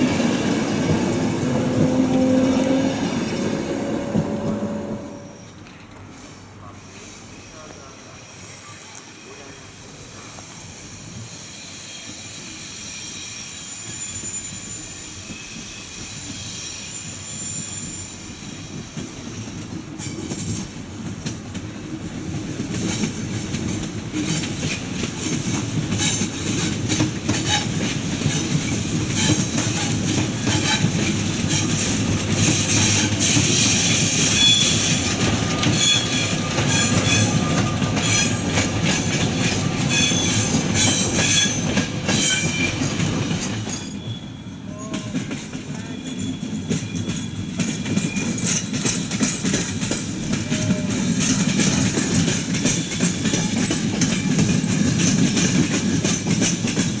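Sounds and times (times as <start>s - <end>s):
wheels squealing on rails: 0.0s - 21.6s, 22.2s - 57.0s
train approaching: 0.0s - 57.0s
wheels clicking over rail joints: 44.9s - 57.0s.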